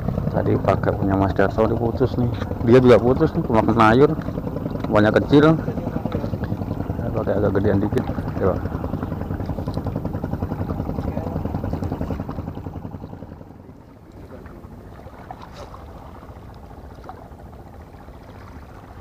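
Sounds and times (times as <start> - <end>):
boat engine chugging: 0.0 - 19.0.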